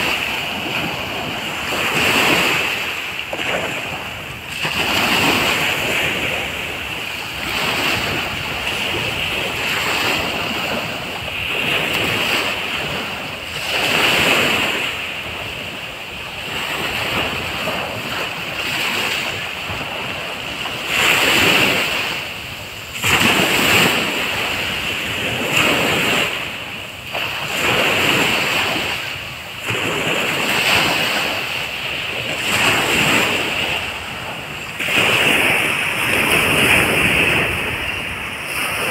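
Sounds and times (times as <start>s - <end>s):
small waves breaking on sand: 0.0s - 38.9s.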